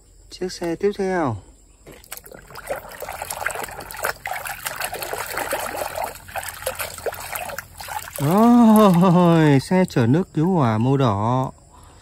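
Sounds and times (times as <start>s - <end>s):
water sloshing in a tub: 1.8s - 11.6s.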